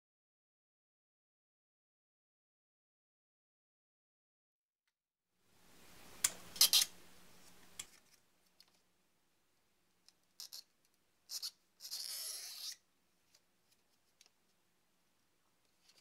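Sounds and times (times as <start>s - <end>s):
knife scraping plastic: 11.3s - 12.8s.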